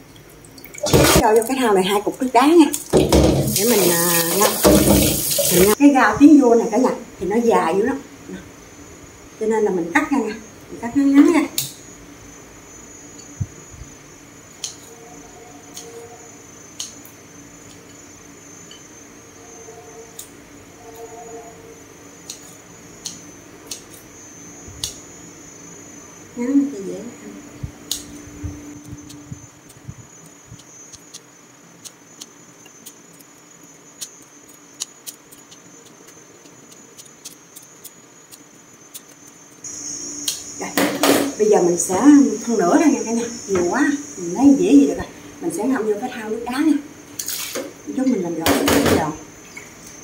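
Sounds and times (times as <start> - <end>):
faint high whine: 22.8 - 47.0
sharp cutting clicks: 28.8 - 39.6
scissors snipping: 34.0 - 39.6.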